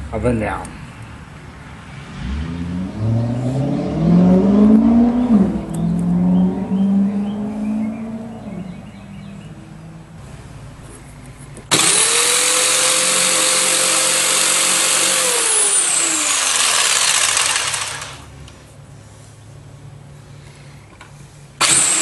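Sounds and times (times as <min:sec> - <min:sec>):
electric power saw whining: 0:11.7 - 0:18.3, 0:21.6 - 0:22.0.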